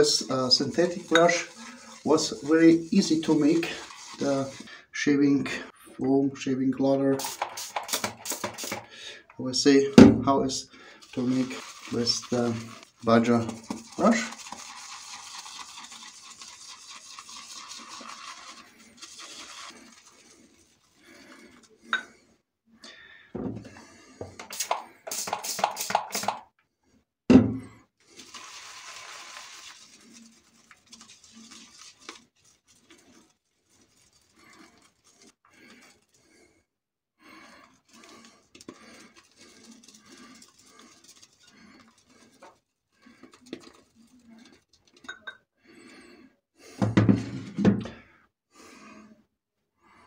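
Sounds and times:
shaving brush lathering soap: 0.0 - 5.7, 7.1 - 8.9, 10.7 - 21.9, 23.9 - 26.4, 28.0 - 36.5, 37.2 - 45.0.

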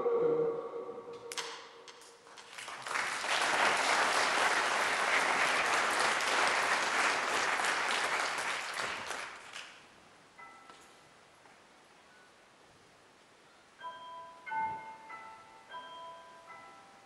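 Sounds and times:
audience applauding: 1.4 - 9.9.

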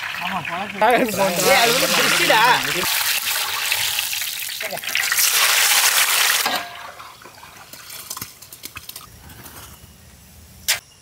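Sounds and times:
hot oil sizzling: 0.0 - 7.2.

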